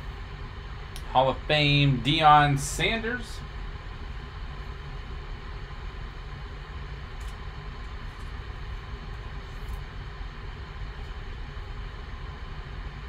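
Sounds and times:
low rumble and hiss: 0.0 - 13.0.

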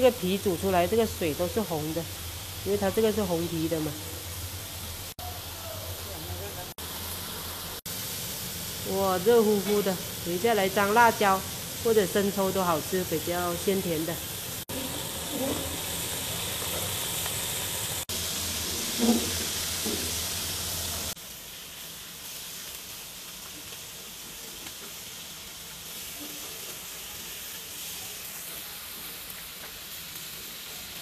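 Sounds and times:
fish sizzling in oil: 0.0 - 31.0
metal spatula in wok: 9.5 - 10.2, 14.7 - 17.3, 18.4 - 20.3.

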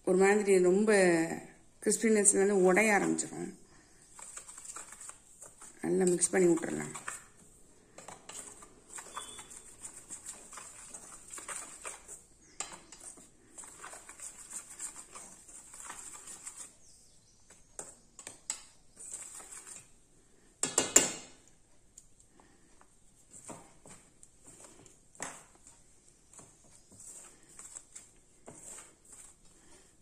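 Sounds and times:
whisk scraping metal bowl: 4.1 - 7.4, 8.0 - 16.8, 19.0 - 20.0, 26.3 - 29.8.

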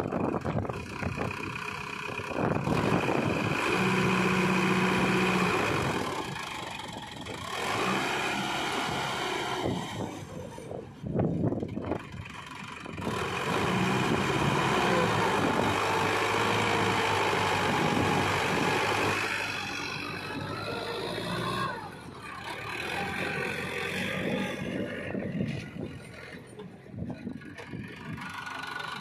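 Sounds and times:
tractor diesel engine pulling: 0.0 - 29.0.

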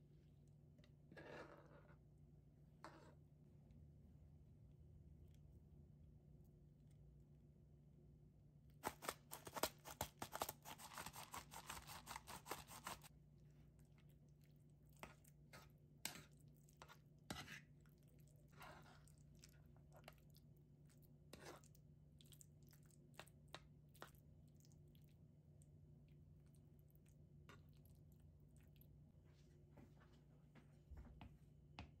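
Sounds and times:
fork mashing food in bowl: 8.8 - 13.1, 13.7 - 25.1
spice grinder crackling: 8.8 - 13.1.

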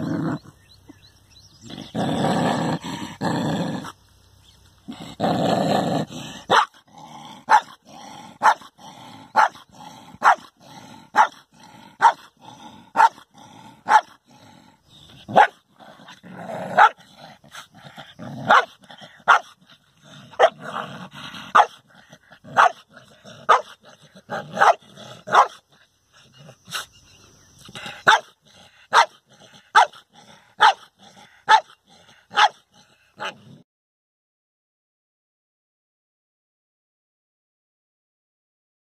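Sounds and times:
dog growling: 0.0 - 0.6, 1.6 - 4.0, 4.8 - 26.9, 27.6 - 33.6
dog barking sharply: 6.5 - 6.7, 24.6 - 25.6
dog barking: 6.5 - 6.8, 7.5 - 7.8, 8.4 - 8.7, 9.3 - 9.6, 10.2 - 10.5, 11.1 - 11.4, 12.0 - 12.3, 12.9 - 13.2, 13.8 - 14.2, 15.3 - 15.6, 16.7 - 17.0, 18.4 - 19.5, 20.3 - 20.6, 21.5 - 21.8, 22.5 - 22.8, 23.4 - 25.6, 28.0 - 30.0, 30.6 - 32.6, 33.2 - 33.4.

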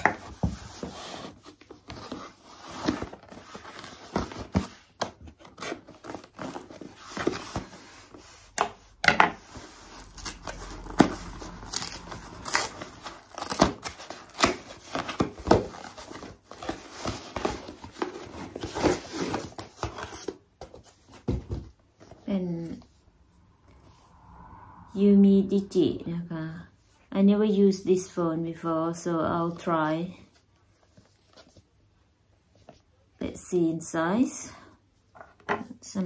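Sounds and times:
cardboard tearing and crinkling: 9.6 - 20.4.

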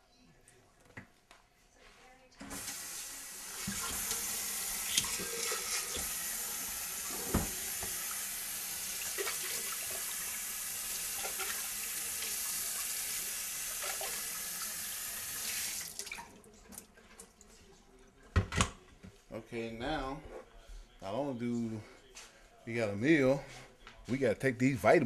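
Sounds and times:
tap water running into sink: 2.4 - 16.4.

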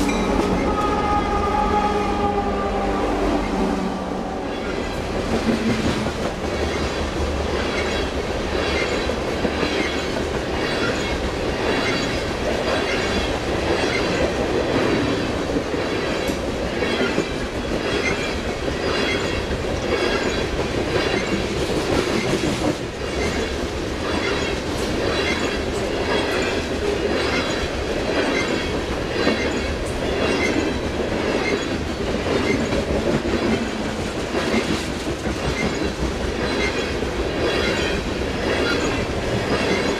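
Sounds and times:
train wheels clickety-clack: 0.0 - 2.2, 4.8 - 39.9
freight train rumble: 0.0 - 39.9.

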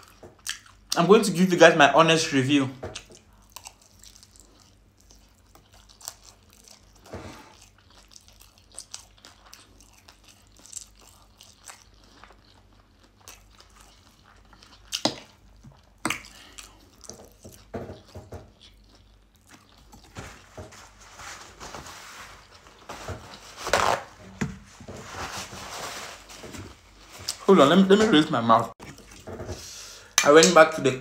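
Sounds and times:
person chewing: 0.0 - 1.0, 2.9 - 21.0, 28.8 - 30.3.

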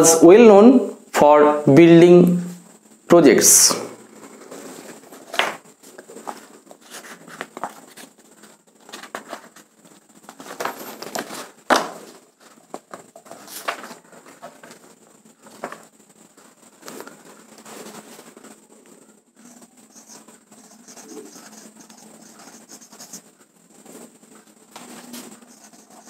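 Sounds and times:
paper rustling and crinkling: 4.2 - 18.6, 24.7 - 26.0.

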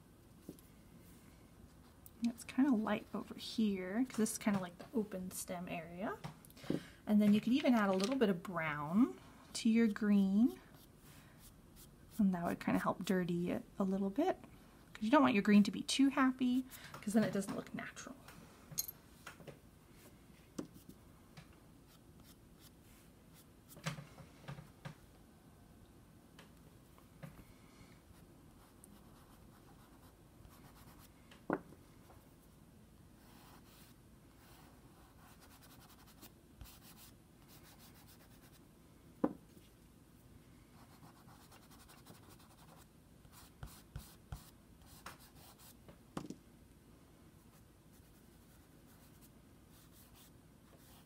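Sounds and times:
pastel scratching on paper: 33.2 - 38.6, 40.8 - 45.8.

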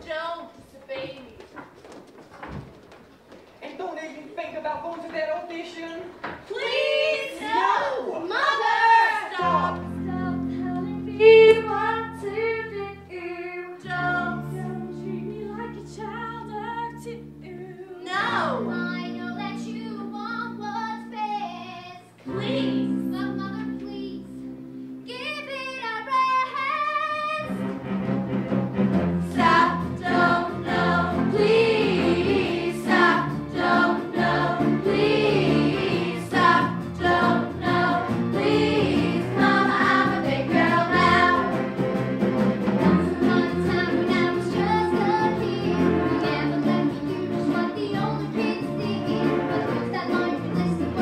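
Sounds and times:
young ensemble singing: 6.4 - 17.0, 29.2 - 41.8, 42.6 - 51.0
instrumental accompaniment: 27.2 - 51.0.

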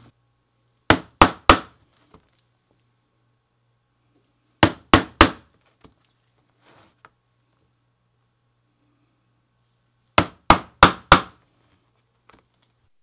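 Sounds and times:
mallet striking chisel through leather: 0.9 - 1.8, 10.2 - 11.4.

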